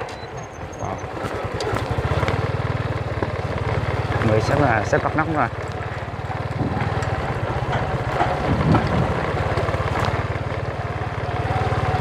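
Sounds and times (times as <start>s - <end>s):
motorbike engine running: 0.0s - 12.0s
wind noise on microphone: 6.5s - 7.0s, 8.4s - 9.3s.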